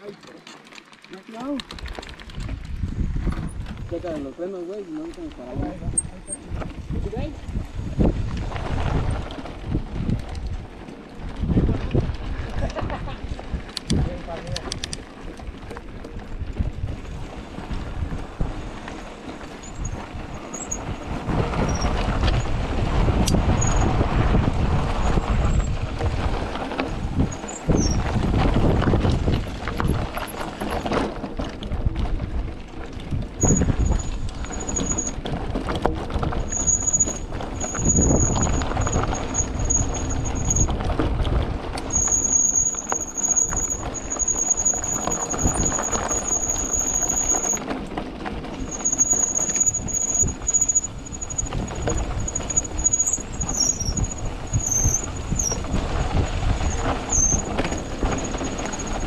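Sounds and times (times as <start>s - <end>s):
bike tyres rumbling on gravel: 0.0s - 59.0s
wind buffeting microphone: 1.7s - 4.5s, 5.2s - 59.0s
high-pitched brake squeal: 19.6s - 20.8s, 33.4s - 35.2s, 36.5s - 40.7s, 41.9s - 47.6s, 48.7s - 55.6s, 56.7s - 59.0s.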